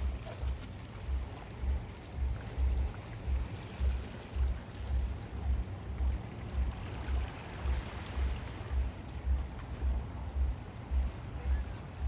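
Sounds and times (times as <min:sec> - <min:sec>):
low regular throb: 0:00.0 - 0:12.0
small waves lapping: 0:00.0 - 0:12.0.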